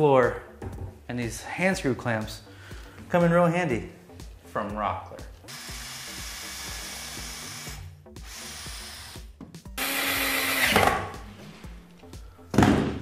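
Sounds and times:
cordless drill driving screws: 0:05.5 - 0:10.9.

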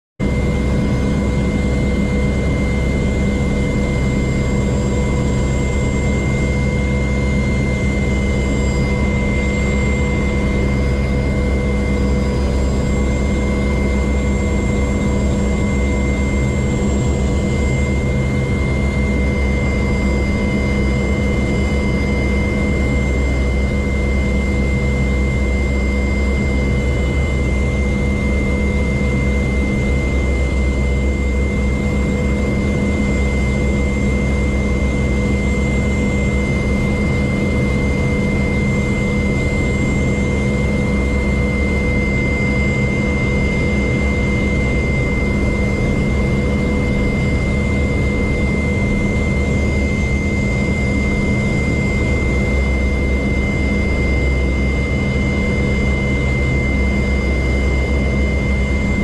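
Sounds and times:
helicopter engine whine: 0:00.2 - 0:59.0
helicopter rotor drone: 0:00.2 - 0:59.0.

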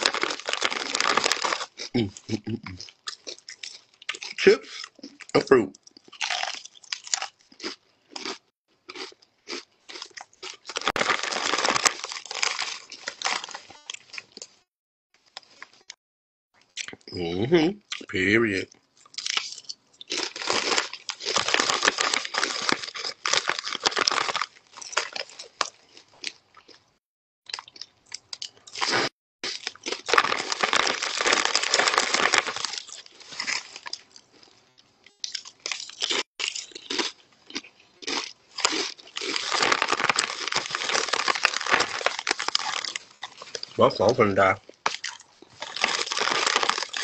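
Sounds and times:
foil bag crinkling: 0:00.0 - 0:01.7, 0:10.6 - 0:13.7, 0:20.2 - 0:25.4, 0:29.9 - 0:34.0, 0:39.1 - 0:43.8, 0:44.9 - 0:47.0
chips crunching: 0:00.0 - 0:02.0, 0:05.9 - 0:14.5, 0:19.0 - 0:26.7, 0:27.5 - 0:34.5, 0:35.2 - 0:43.8, 0:44.7 - 0:47.0.

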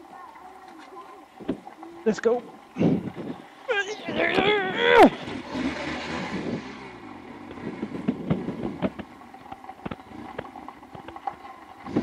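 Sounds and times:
motorcycle engine running low: 0:02.6 - 0:12.0.

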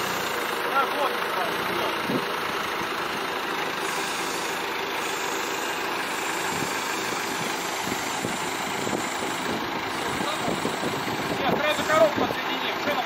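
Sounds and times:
diesel truck engine idling: 0:00.0 - 0:13.0.

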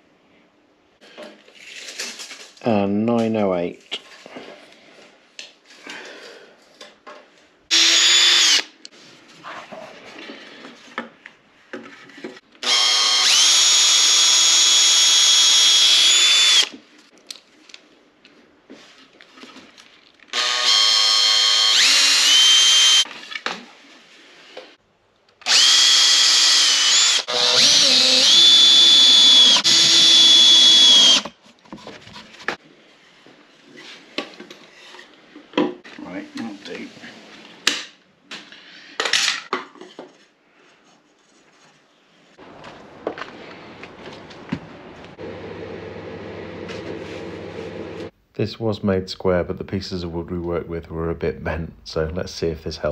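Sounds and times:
cordless drill whining: 0:07.7 - 0:08.7, 0:12.6 - 0:16.7, 0:20.3 - 0:23.1, 0:25.4 - 0:31.3.

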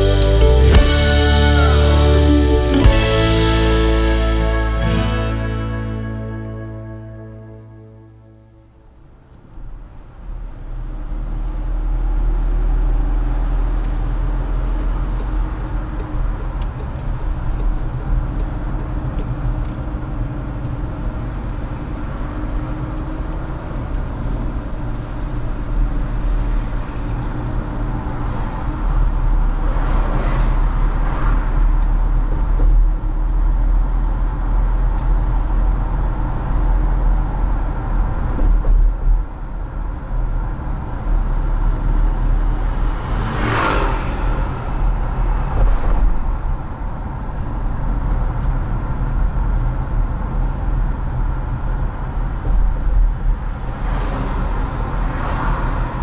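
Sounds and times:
car interior road rumble: 0:00.0 - 0:56.0
rush of noise: 0:34.4 - 0:48.0.

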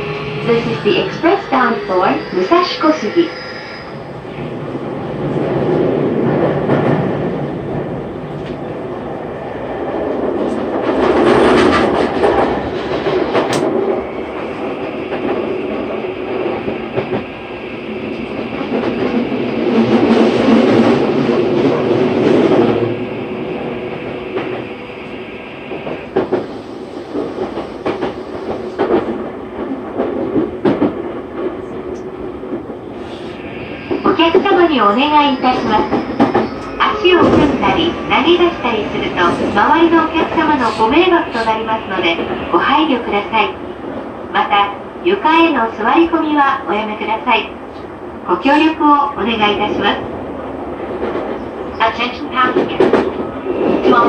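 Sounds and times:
steady high tone: 0:00.0 - 0:04.5, 0:33.4 - 0:42.0
train rolling rumble: 0:00.0 - 0:54.0.

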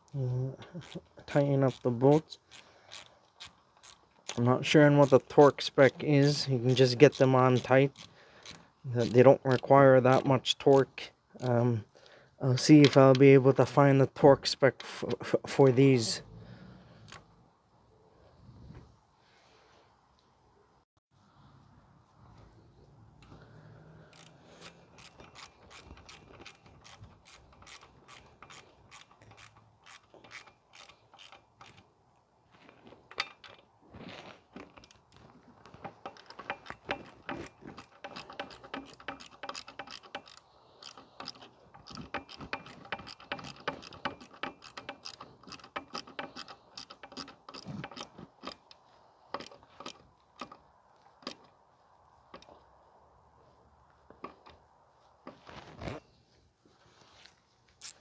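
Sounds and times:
ratchet wrench clicking: 0:00.7 - 0:01.1, 0:01.7 - 0:04.4, 0:05.0 - 0:10.9, 0:23.2 - 0:31.8, 0:36.0 - 0:50.6.

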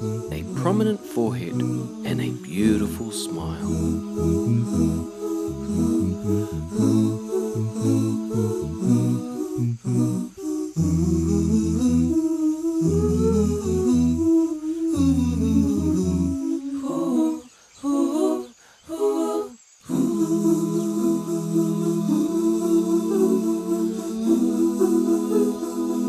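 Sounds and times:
voices singing without instruments: 0:00.0 - 0:26.0.

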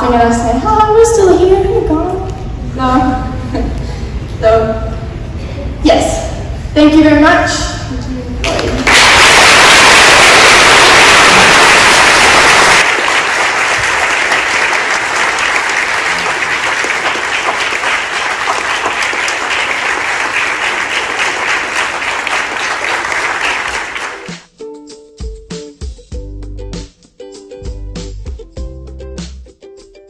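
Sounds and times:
audience applauding: 0:08.4 - 0:24.5.

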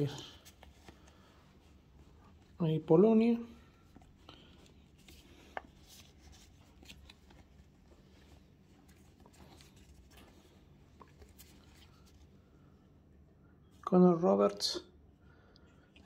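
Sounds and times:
paper rustling: 0:00.0 - 0:12.4.

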